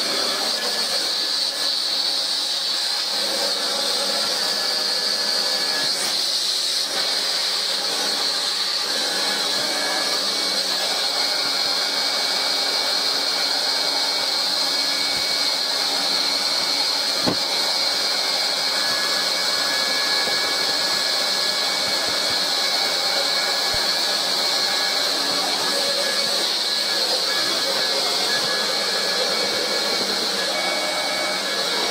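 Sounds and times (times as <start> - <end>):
hot-air welding gun hissing: 14.8 - 18.1, 21.4 - 24.2.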